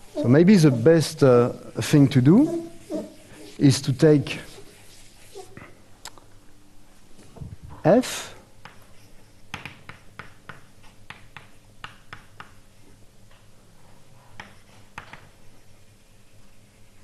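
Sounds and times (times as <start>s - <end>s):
faint room hum: 0.0s - 17.0s
writing taps and scratches on board: 9.5s - 12.6s, 14.4s - 15.4s.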